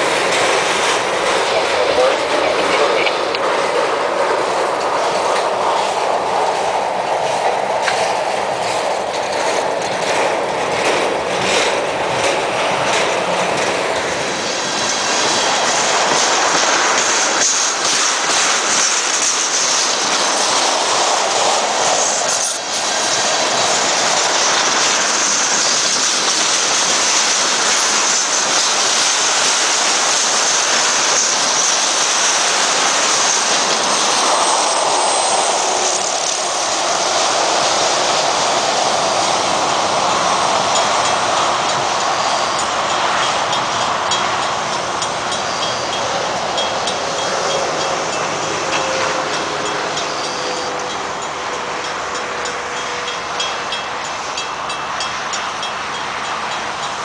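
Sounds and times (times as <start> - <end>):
train wheels clicking over rail joints: 0.0 - 57.0
high-pitched wheel squeal: 45.3 - 53.9.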